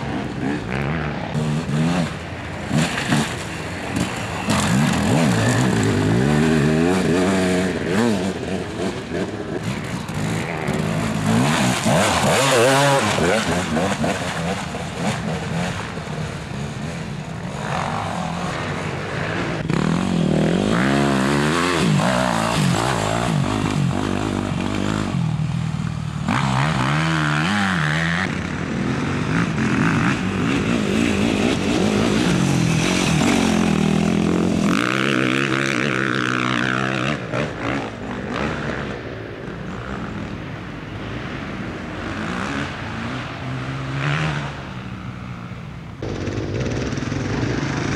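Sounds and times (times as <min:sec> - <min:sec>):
dirt bike engines revving: 0:00.0 - 0:47.9.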